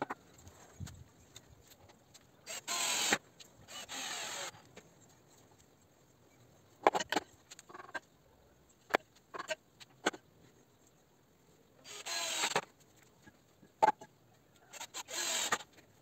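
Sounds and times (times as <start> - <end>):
short bursts of noise: 2.4 - 4.7, 11.9 - 12.7, 14.7 - 15.8.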